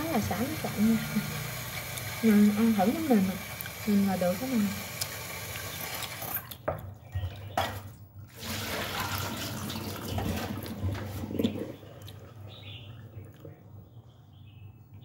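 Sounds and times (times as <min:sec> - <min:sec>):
hand stirring pasta: 0:00.0 - 0:06.7
tap water running: 0:00.0 - 0:13.4.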